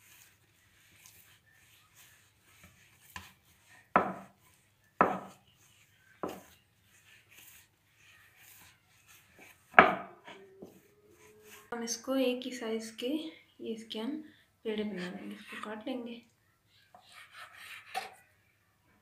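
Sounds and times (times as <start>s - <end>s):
hands kneading dough on wooden board: 0.0s - 11.7s.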